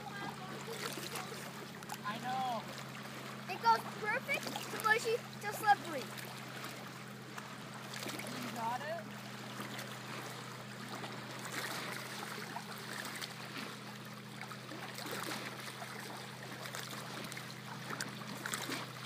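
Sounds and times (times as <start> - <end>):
low steady hum: 0.0 - 19.0
water lapping at shore: 0.0 - 19.0.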